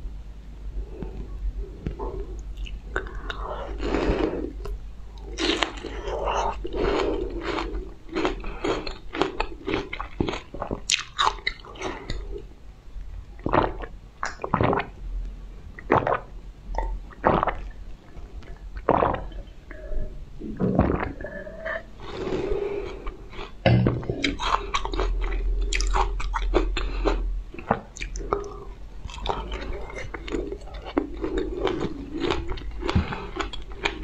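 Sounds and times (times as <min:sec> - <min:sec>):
biting and wet chewing: 0:01.8 - 0:12.5, 0:20.8 - 0:34.0.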